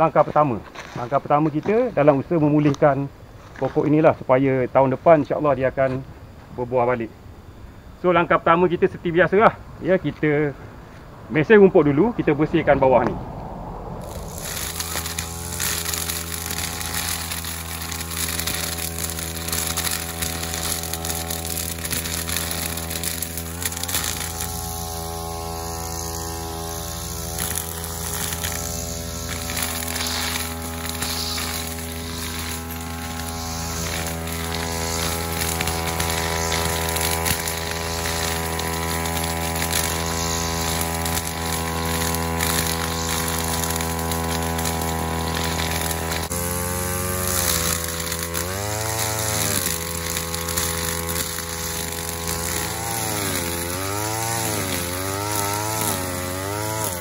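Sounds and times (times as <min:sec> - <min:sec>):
brush cutter engine running: 0:14.0 - 0:57.0
cutting grass and weeds: 0:14.0 - 0:57.0.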